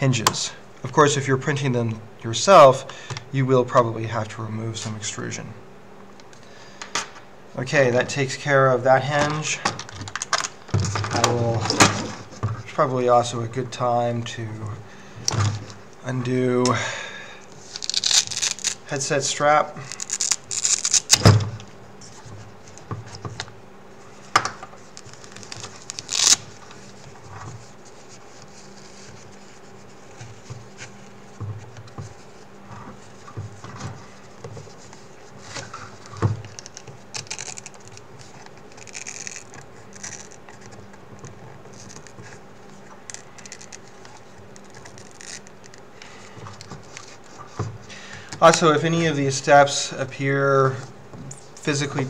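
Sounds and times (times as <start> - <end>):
headset strap rubbing and scraping: 17.5 - 19.0, 19.8 - 21.2, 23.9 - 48.8.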